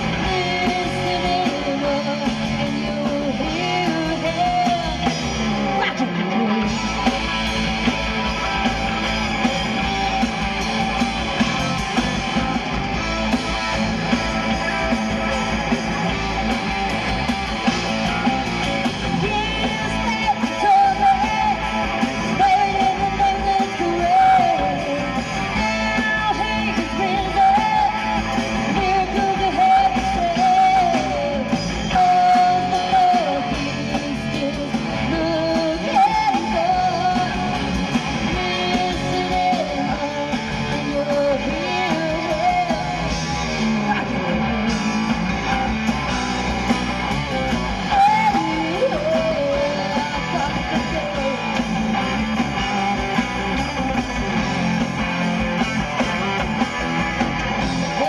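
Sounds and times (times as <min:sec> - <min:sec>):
woman singing into a microphone: 0:00.0 - 0:05.2, 0:19.2 - 0:21.7, 0:22.3 - 0:37.6, 0:38.3 - 0:43.1, 0:47.9 - 0:51.5
distorted electric guitar: 0:00.0 - 0:58.0
drums: 0:00.0 - 0:58.0.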